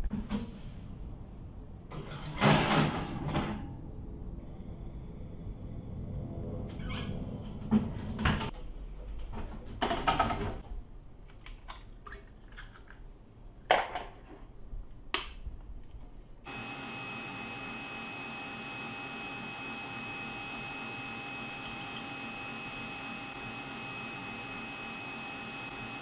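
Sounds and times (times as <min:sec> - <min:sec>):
kitchen appliance motor humming: 0:16.5 - 0:26.0.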